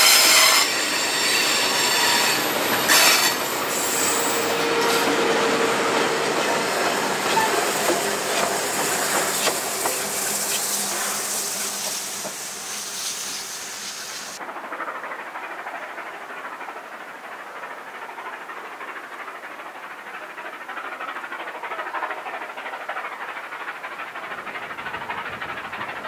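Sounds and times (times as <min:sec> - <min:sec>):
flange squeal: 0:00.0 - 0:09.1
steam hissing: 0:00.0 - 0:14.4
distant train: 0:00.0 - 0:26.0.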